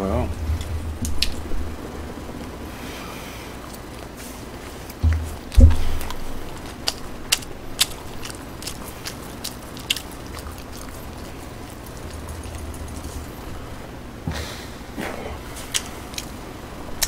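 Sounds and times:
person chewing food: 0:03.5 - 0:13.9
loud low thump: 0:05.0 - 0:06.0
wet mouth clicks: 0:05.5 - 0:12.6.

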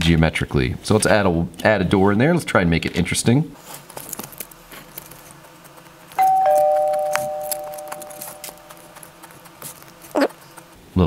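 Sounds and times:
two-note doorbell chime: 0:06.2 - 0:08.7.

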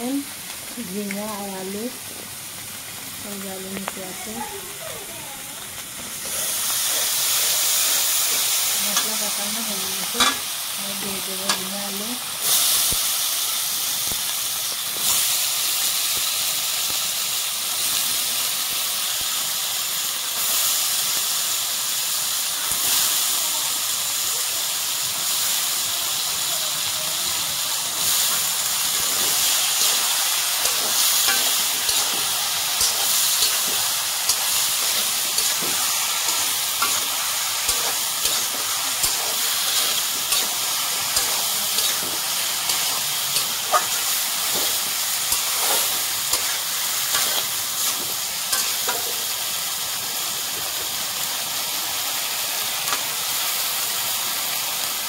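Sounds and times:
vegetables sizzling in hot oil: 0:00.0 - 0:55.0
metal spatula scraping pan: 0:29.1 - 0:49.2.

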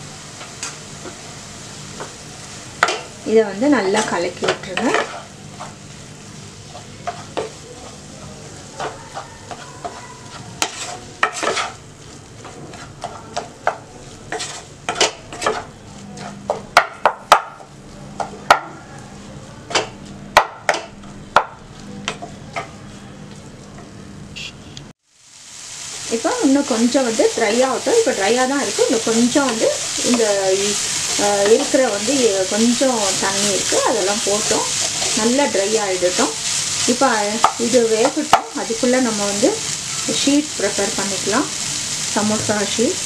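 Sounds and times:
light frying sizzle: 0:00.0 - 0:43.0
wooden spatula scraping a pan: 0:03.9 - 0:05.8, 0:08.8 - 0:11.8, 0:12.4 - 0:16.4.

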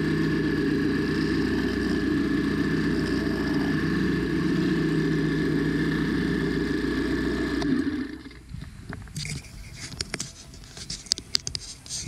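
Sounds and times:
string trimmer engine running: 0:00.0 - 0:08.5.

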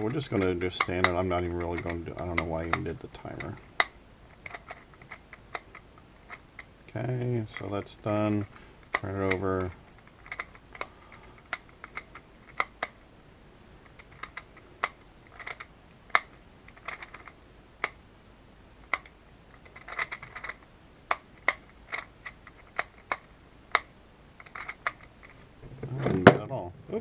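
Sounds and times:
puzzle dials and pins clicking: 0:00.0 - 0:06.7, 0:08.4 - 0:13.0, 0:13.9 - 0:18.0, 0:18.9 - 0:25.4.

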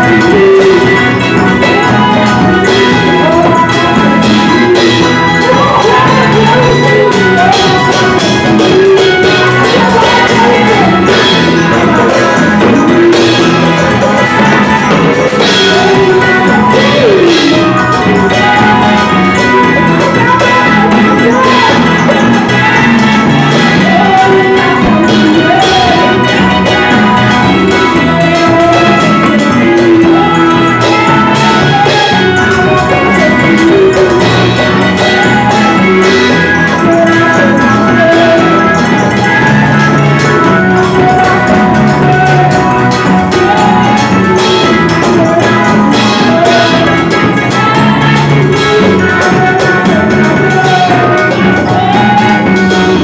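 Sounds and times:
electric bass guitar: 0:00.0 - 0:53.0
keyboard: 0:00.0 - 0:53.0
percussion: 0:00.0 - 0:53.0
women singing into microphones: 0:00.0 - 0:53.0.

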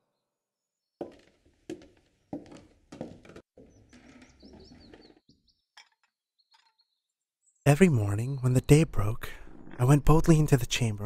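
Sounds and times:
faint scuffing: 0:01.0 - 0:05.2
footsteps on wooden floor: 0:01.0 - 0:05.4
birds chirping: 0:03.5 - 0:11.0.

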